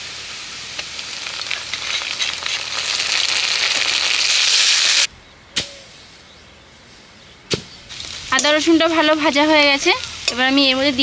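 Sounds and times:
paste sizzling in hot oil: 0.0s - 5.1s.

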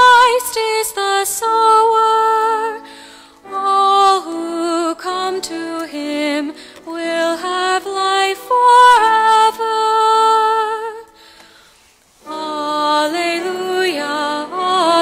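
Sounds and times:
person singing chant: 13.4s - 15.0s.

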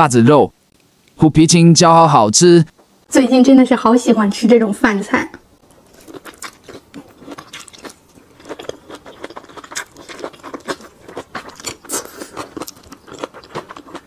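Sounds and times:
chewing with mouth clicks: 5.7s - 14.0s.

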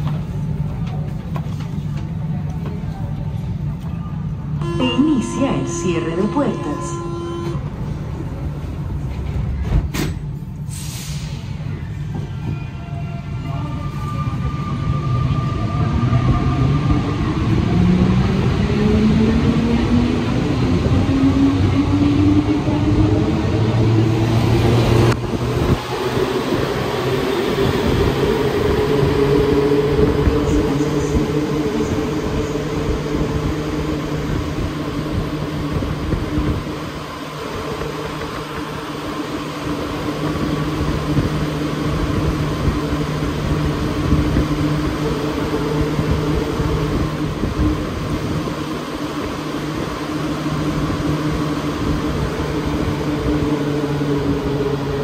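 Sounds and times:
train rolling noise: 0.0s - 55.0s.

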